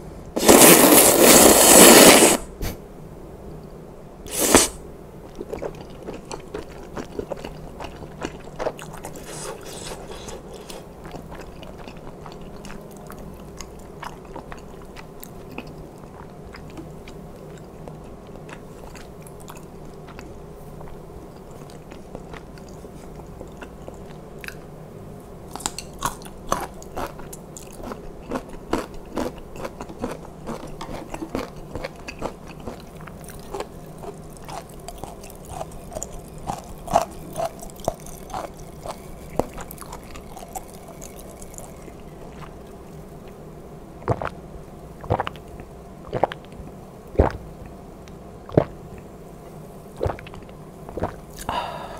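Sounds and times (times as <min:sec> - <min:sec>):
wet chewing mouth clicks: 0:44.0 - 0:44.4, 0:45.0 - 0:47.8, 0:48.5 - 0:48.7, 0:50.0 - 0:51.5.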